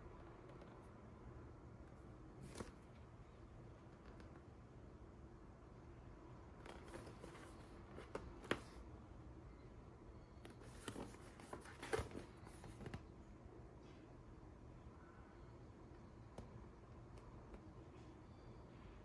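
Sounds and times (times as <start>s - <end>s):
cardboard box being handled: 10.6s - 12.8s.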